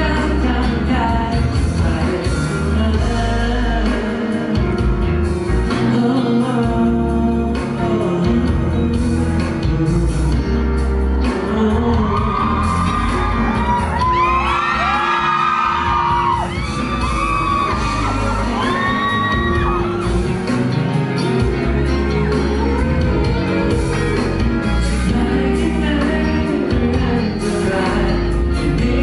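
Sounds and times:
man singing: 0.0s - 29.0s
pop-rock band through sound system: 0.0s - 29.0s
audience shouting: 12.2s - 24.3s.

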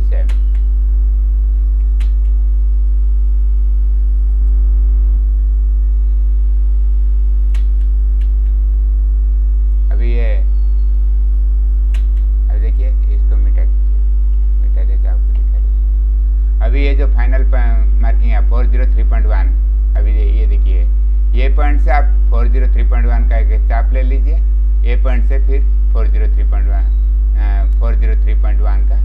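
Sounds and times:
electrical mains hum: 0.0s - 29.0s
faint clicks: 1.7s - 2.4s, 7.5s - 8.6s, 11.9s - 12.3s.

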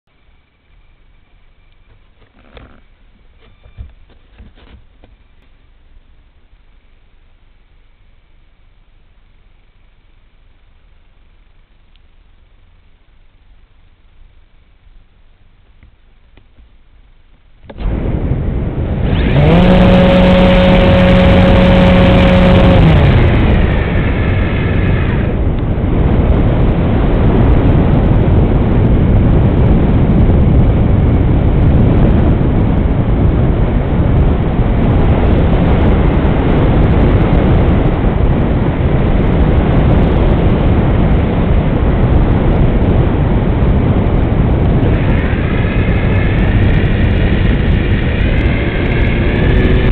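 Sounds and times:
model airplane motor tone: 0.1s - 5.6s, 17.6s - 26.7s
propeller and wind noise: 0.1s - 49.9s.

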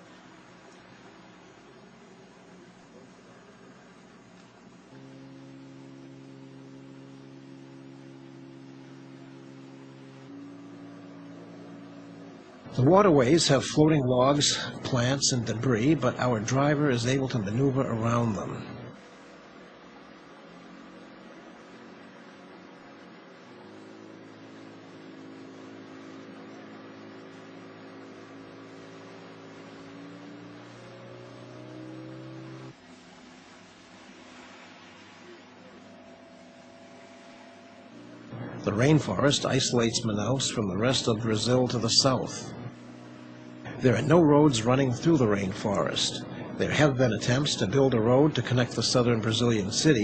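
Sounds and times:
faint hiss: 0.0s - 50.0s
low steady hum: 0.0s - 50.0s
motorboat engine droning: 0.0s - 50.0s.

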